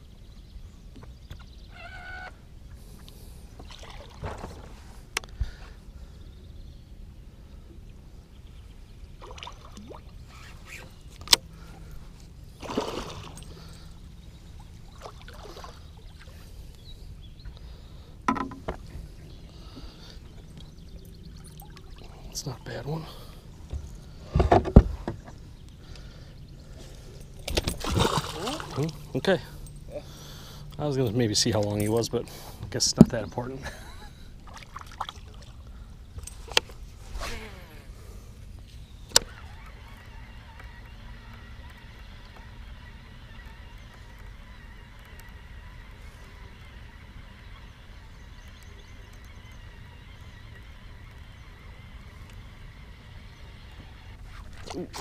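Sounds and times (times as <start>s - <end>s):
rod swish and reel whirring: 9.6s - 11.4s, 36.3s - 38.0s, 39.1s - 55.0s
fish splashing in water: 12.6s - 13.6s, 27.5s - 28.9s.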